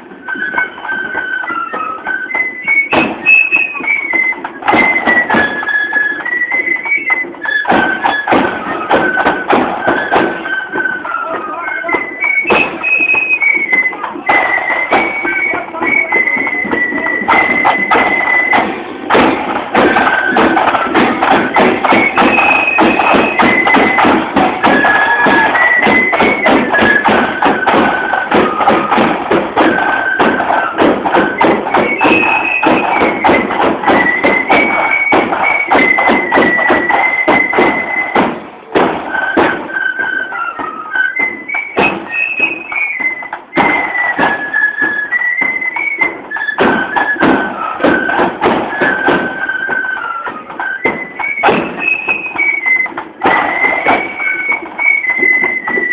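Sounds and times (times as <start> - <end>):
drums beating: 0.0 - 55.9
flutes playing melody: 0.0 - 55.9.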